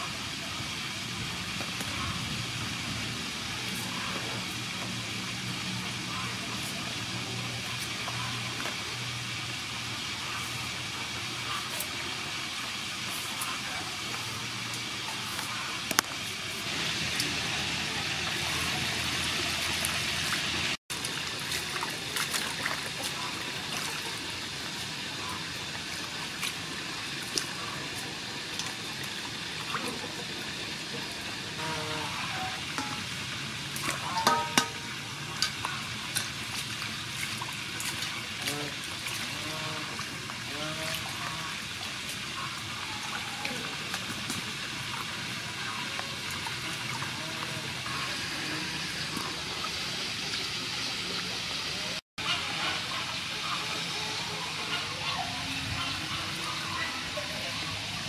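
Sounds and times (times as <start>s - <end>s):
water running into a steel bowl: 3.1s - 53.2s
knocks on metal bowl: 34.2s - 34.8s.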